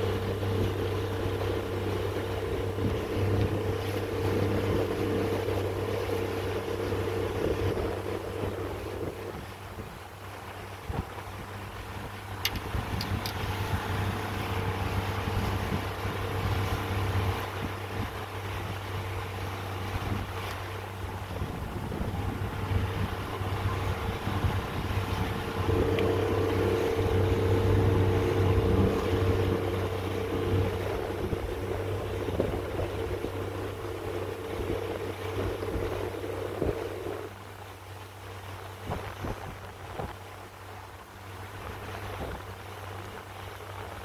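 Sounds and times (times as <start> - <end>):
motorboat engine running: 0.0 - 44.0
water rushing: 0.0 - 44.0
wind: 0.0 - 44.0.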